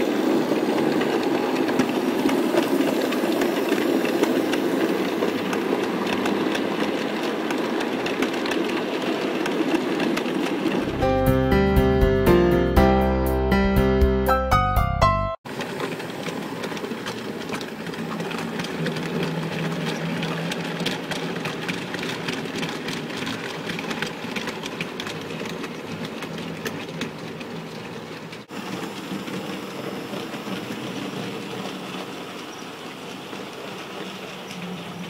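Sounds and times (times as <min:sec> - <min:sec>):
wheels clicking over rail joints: 0:00.0 - 0:11.4, 0:15.5 - 0:35.0
model train motor hum: 0:15.5 - 0:35.0.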